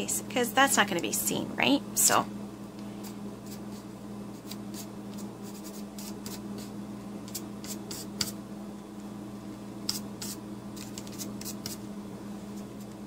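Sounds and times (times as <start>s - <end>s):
steady low hum: 0.0s - 13.0s
brush scratching on paper: 4.4s - 6.7s, 7.3s - 8.3s, 9.9s - 11.8s.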